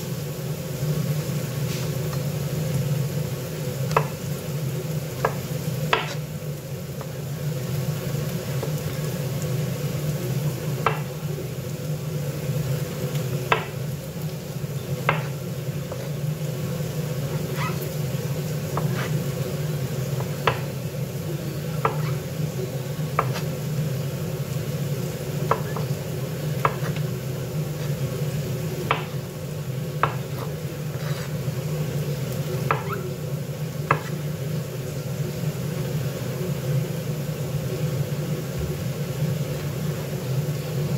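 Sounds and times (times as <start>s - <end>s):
knife knocking on cutting board: 15.1s - 15.3s, 30.0s - 30.5s.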